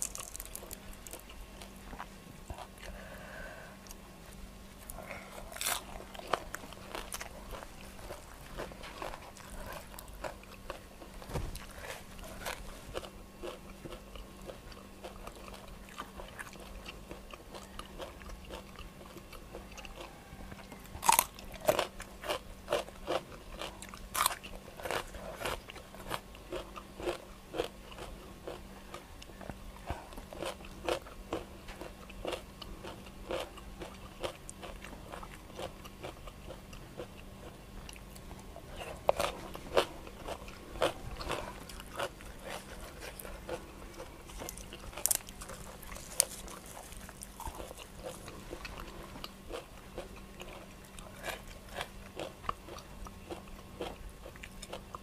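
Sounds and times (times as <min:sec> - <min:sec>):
loud crunchy bites: 0:00.0 - 0:01.7, 0:05.4 - 0:16.9, 0:17.5 - 0:28.6, 0:38.7 - 0:54.9
chewing: 0:00.0 - 0:03.2, 0:04.8 - 0:55.0.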